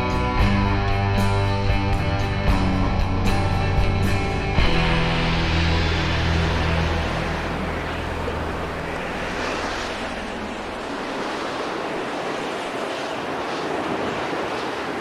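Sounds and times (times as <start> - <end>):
music: 0.0 - 10.2
waves breaking: 4.0 - 15.0.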